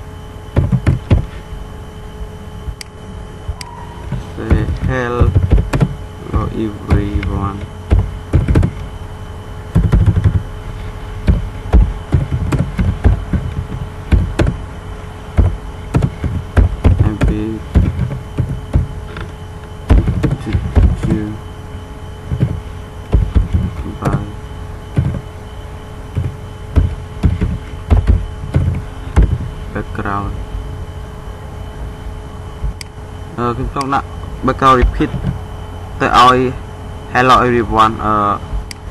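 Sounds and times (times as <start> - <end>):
faint steady hum: 0.0 - 38.9
keyboard typing: 15.4 - 19.2.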